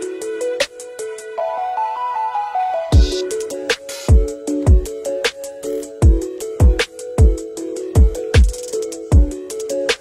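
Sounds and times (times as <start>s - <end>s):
low kick drums: 3.0s - 3.2s, 4.1s - 4.9s, 6.0s - 7.4s, 8.0s - 9.4s.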